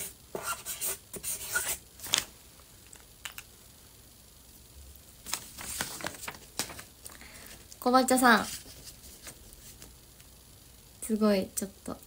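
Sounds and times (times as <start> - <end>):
marker pen scratching on paper: 0.0 - 1.8.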